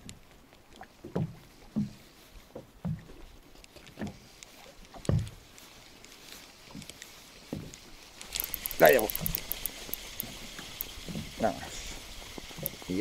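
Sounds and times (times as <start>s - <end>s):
water slapping against boat hull: 0.0s - 5.5s, 8.6s - 11.7s
faint hiss: 3.6s - 13.0s.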